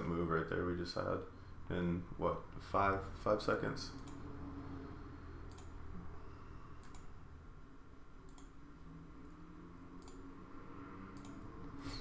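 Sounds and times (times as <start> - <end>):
computer mouse clicks: 3.9 - 4.3, 5.4 - 5.8, 6.8 - 7.2, 8.2 - 8.6, 10.0 - 10.3, 11.1 - 11.8.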